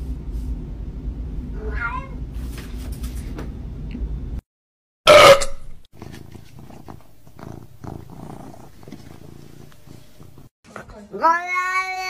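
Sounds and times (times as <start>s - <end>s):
cat yowling: 1.6s - 2.2s, 11.2s - 12.0s.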